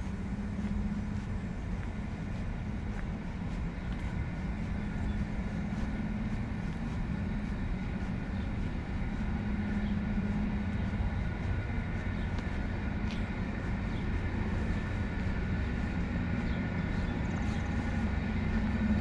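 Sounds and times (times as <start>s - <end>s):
faint whining tones: 0.0s - 19.0s
footsteps on pavement: 0.0s - 19.0s
low mechanical hum: 0.0s - 19.0s.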